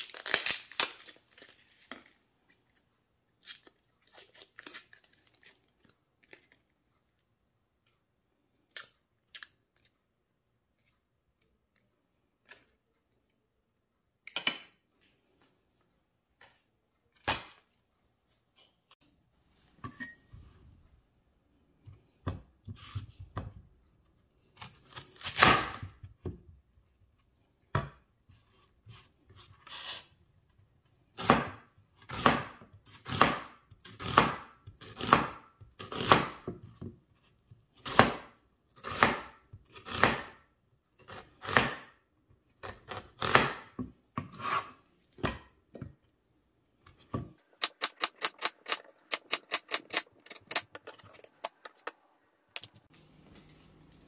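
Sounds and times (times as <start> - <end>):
knife slicing onion on cutting board: 31.2 - 36.9, 37.8 - 40.4, 41.0 - 45.4.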